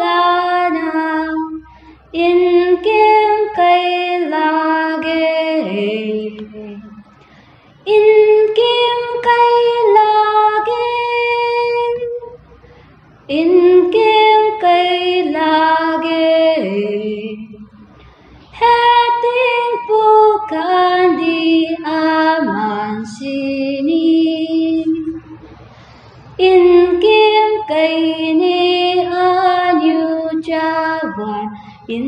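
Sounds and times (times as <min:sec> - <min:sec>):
woman singing unaccompanied: 0:00.0 - 0:07.1, 0:07.8 - 0:17.9, 0:18.5 - 0:25.4, 0:26.4 - 0:32.0.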